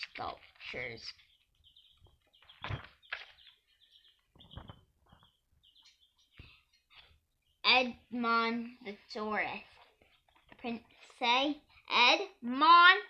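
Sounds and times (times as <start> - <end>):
book pages rustling: 9.6 - 11.2.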